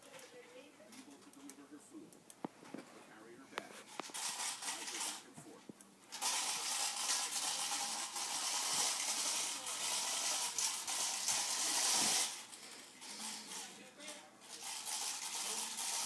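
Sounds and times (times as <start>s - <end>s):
toy car clattering and rattling: 3.9s - 5.2s, 6.1s - 16.0s.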